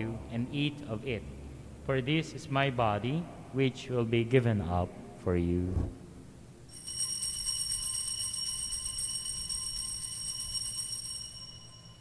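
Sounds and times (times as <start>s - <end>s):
altar bells jingling: 6.7s - 12.0s.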